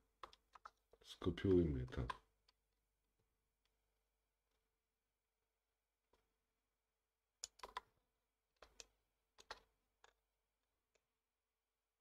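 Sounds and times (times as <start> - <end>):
keyboard and mouse clicks: 0.2 - 0.8, 7.4 - 7.9, 8.6 - 10.2.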